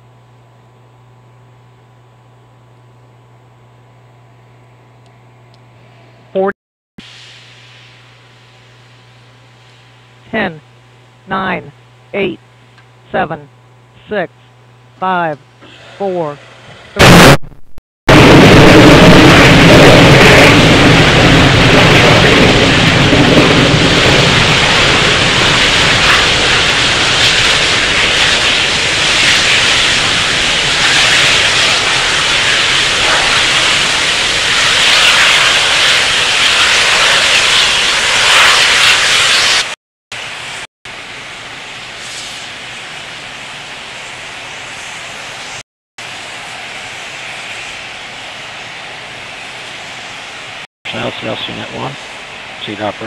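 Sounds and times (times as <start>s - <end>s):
rocket engine roar: 15.0s - 53.0s.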